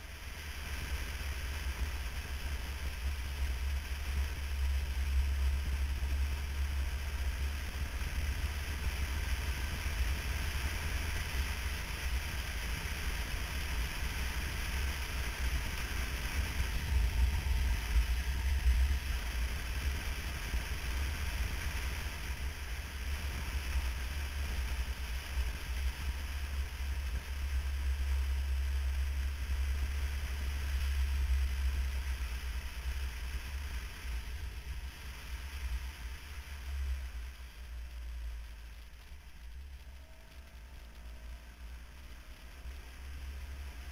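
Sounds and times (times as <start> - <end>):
motorcycle engine running: 0.0 - 43.9
wind rush on microphone: 0.0 - 43.9.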